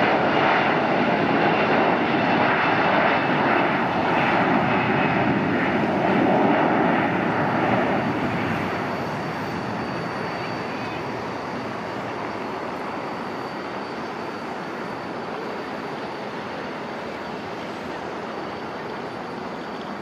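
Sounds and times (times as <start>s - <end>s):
jet engine roar: 0.0s - 20.0s
thin high whine: 7.2s - 20.0s.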